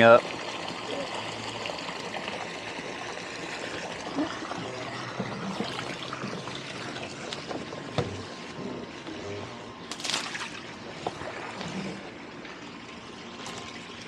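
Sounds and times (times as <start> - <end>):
water pouring and splashing: 0.0 - 14.0.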